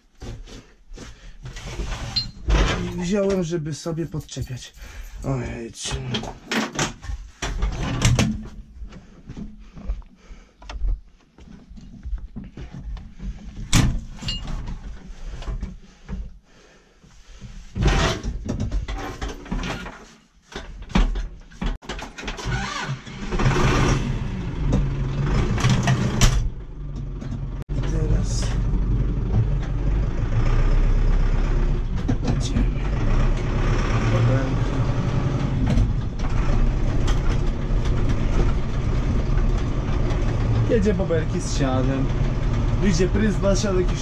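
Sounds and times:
clicks and knocks of controls: 17.8s - 24.0s, 24.6s - 29.8s, 31.8s - 33.5s
tractor diesel engine starting: 21.9s - 44.0s.

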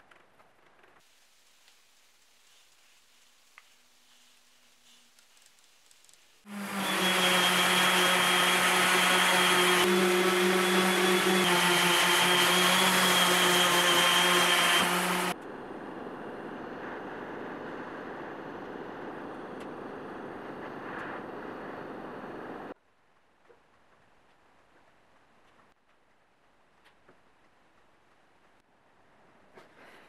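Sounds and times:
orbital sander running: 6.5s - 15.4s.

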